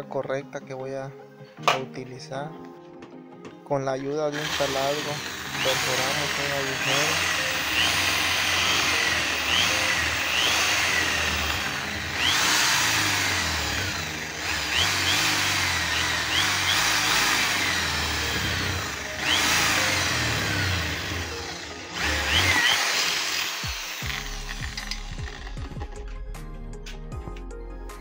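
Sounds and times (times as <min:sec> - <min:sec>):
electric drill boring through metal can: 0:04.3 - 0:26.0.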